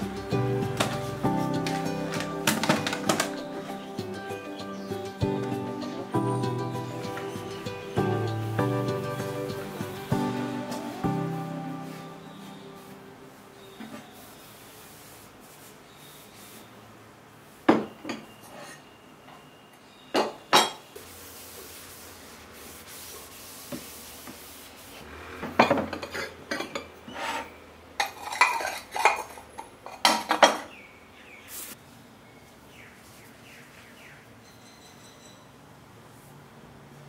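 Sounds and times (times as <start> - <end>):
objects knocking on wooden shelf: 0.7 - 3.5.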